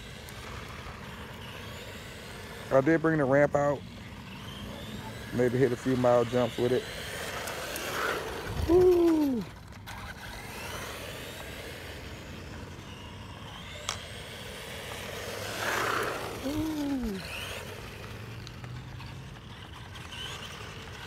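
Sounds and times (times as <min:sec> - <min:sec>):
rc truck electric motor whine: 0:00.0 - 0:21.0
man whooping: 0:08.6 - 0:09.5, 0:16.4 - 0:17.2.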